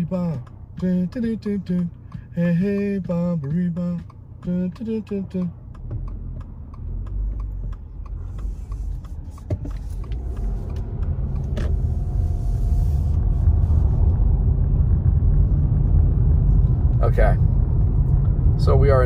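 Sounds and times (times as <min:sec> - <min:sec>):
car engine rumble: 0:00.0 - 0:19.0
road noise inside moving car: 0:00.0 - 0:19.0.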